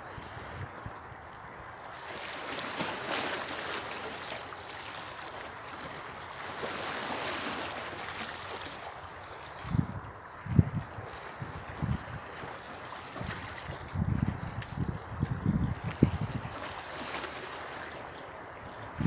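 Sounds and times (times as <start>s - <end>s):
sea water sloshing around rocks: 1.9s - 19.0s.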